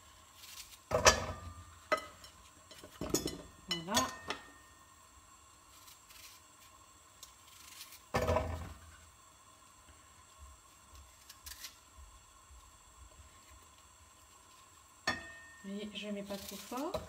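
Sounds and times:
knife cutting apple: 0.2 - 1.6, 5.7 - 8.9, 10.9 - 11.8, 16.2 - 17.0.

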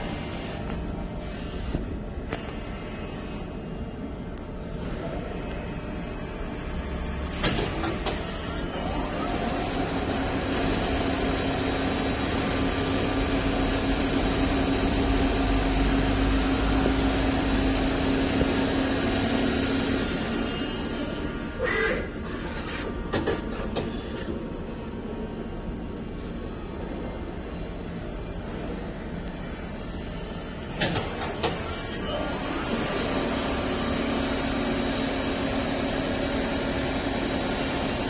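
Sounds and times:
machine clunks and clicks: 7.3 - 8.4, 23.1 - 24.1, 30.8 - 31.7
lathe spindle humming: 9.7 - 20.9
loud hiss: 10.3 - 21.2.

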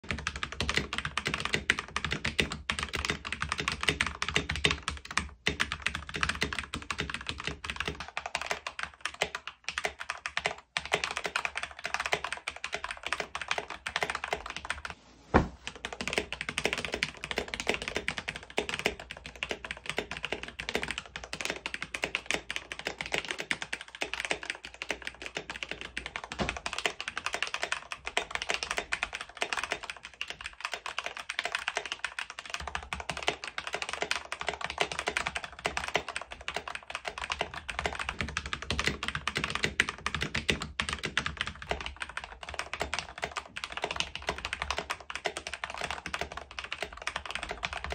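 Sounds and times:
fast mechanical keyboard typing: 0.0 - 14.9, 15.7 - 47.9
sharp thump: 15.3 - 15.7, 26.3 - 26.7.

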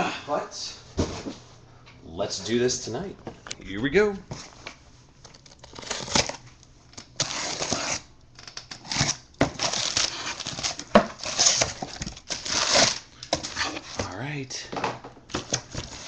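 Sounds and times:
packing paper crinkling: 5.2 - 14.0, 15.3 - 16.0.

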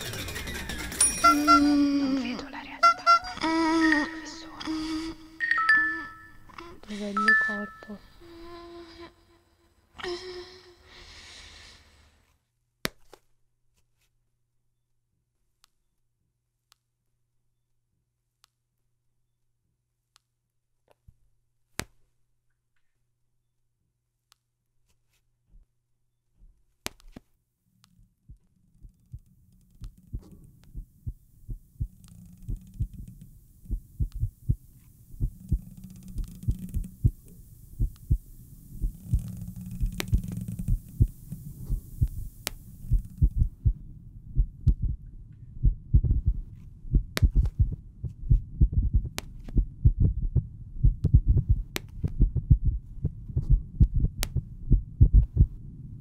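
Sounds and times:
heartbeat: 28.3 - 56.0
faint hiss: 30.6 - 44.2
sharp clicks: 31.8 - 43.5.

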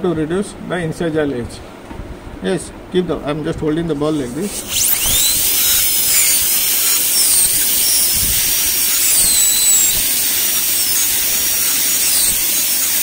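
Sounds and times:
water spray hiss: 4.2 - 13.0
dental drill whining: 4.4 - 13.0.

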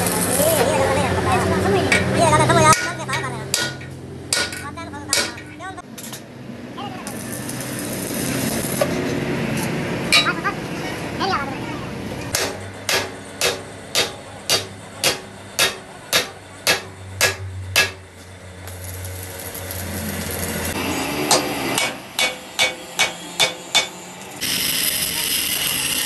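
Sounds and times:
hammer striking steel axle: 1.9 - 6.3, 8.8 - 10.4, 12.2 - 19.0, 21.2 - 24.0.

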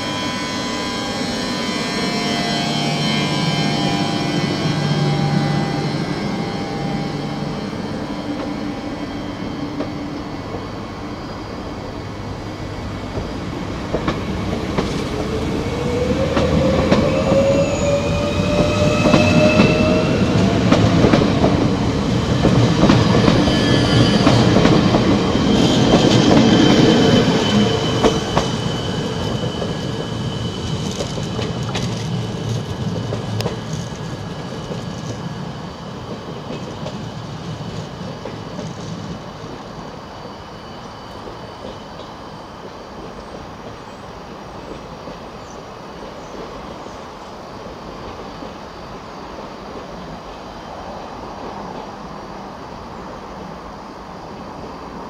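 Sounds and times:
train wheels clattering on rails: 13.1 - 40.4, 41.1 - 48.7.

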